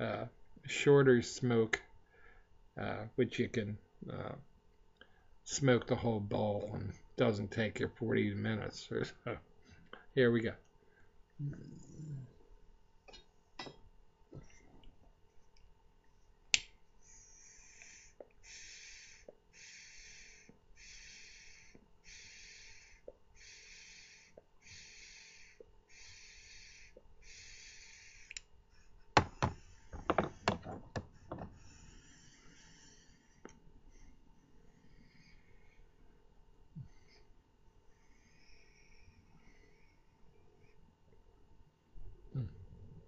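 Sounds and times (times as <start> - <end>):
sharp clicks and knocks: 29.2 - 31.6.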